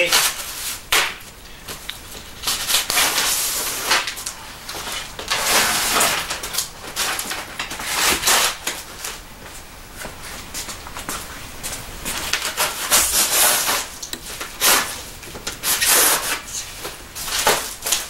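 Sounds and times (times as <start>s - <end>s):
styrofoam scraping and rubbing: 0.0s - 1.1s, 2.4s - 9.1s, 12.2s - 18.0s.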